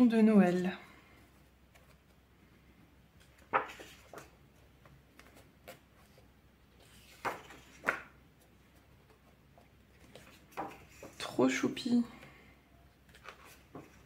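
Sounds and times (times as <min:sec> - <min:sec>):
paper pages rustling: 0:01.7 - 0:02.2, 0:03.2 - 0:11.4, 0:13.0 - 0:14.0.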